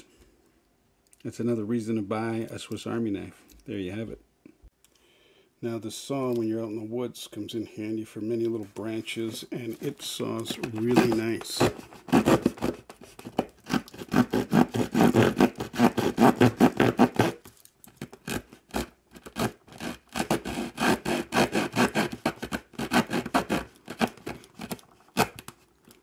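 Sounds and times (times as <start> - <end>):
light scrapes: 8.4 - 12.3
saw cutting wood: 9.8 - 17.4, 18.3 - 25.4.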